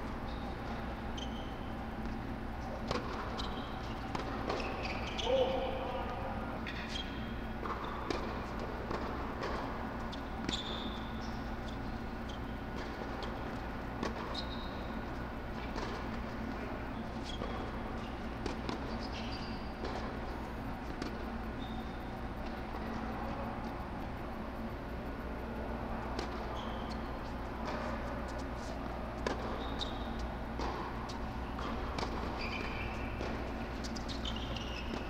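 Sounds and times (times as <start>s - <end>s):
air blowers humming: 0.0s - 35.0s
sneaker squeaks on court: 0.2s - 23.0s, 26.1s - 35.0s
tennis balls struck and bouncing: 2.8s - 5.8s, 6.6s - 11.8s, 12.6s - 21.4s, 25.1s - 35.0s.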